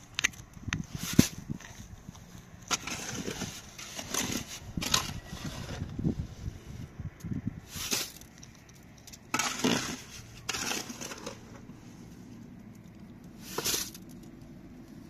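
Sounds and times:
shovel knocking wheelbarrow: 2.7s - 5.8s, 9.3s - 11.5s
trowel scraping wet mortar: 2.7s - 6.0s, 7.6s - 8.3s, 9.3s - 12.0s.

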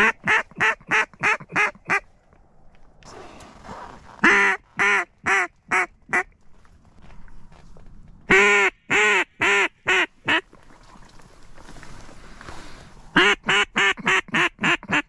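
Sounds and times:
duck call quacks: 0.0s - 2.0s, 4.2s - 6.3s, 8.3s - 10.4s, 13.2s - 15.0s.

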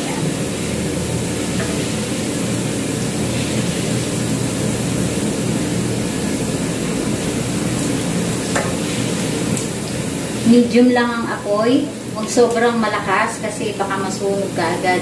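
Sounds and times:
garlic sizzling in oil: 0.0s - 15.0s.

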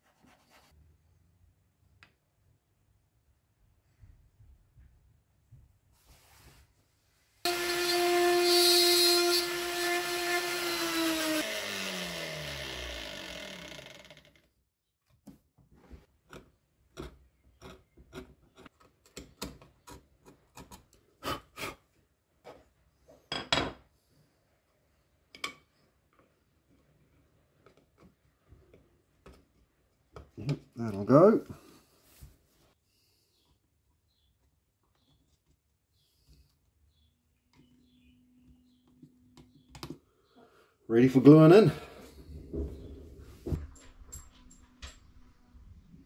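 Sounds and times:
power tool motor running: 7.5s - 14.4s.

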